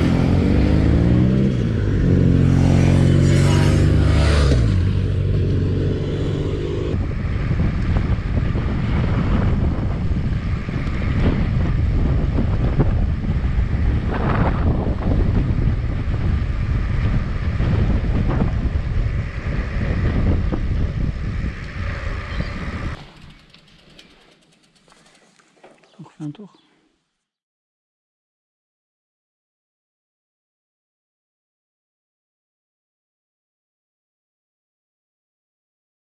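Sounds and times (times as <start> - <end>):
wind rumble on microphone: 0.0 - 23.5
motorcycle passing: 0.0 - 25.9
vehicle engine: 0.0 - 25.9.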